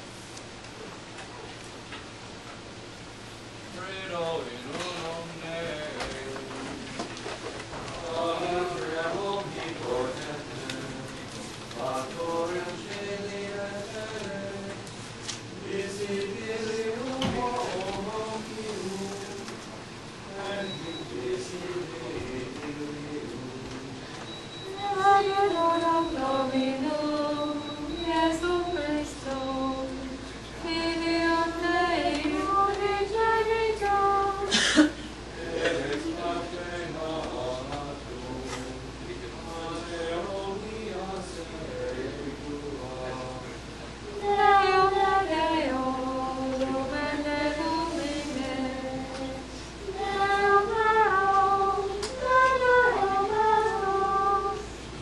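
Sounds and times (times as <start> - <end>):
women singing chant-like melody: 15.6 - 19.6, 24.6 - 34.8, 44.1 - 54.8.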